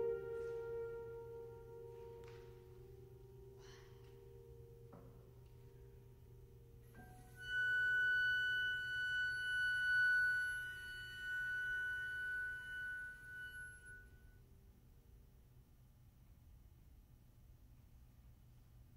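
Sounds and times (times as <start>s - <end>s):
flute holding high note: 0.0s - 2.3s, 7.0s - 14.2s
faint piano tone: 0.0s - 15.2s.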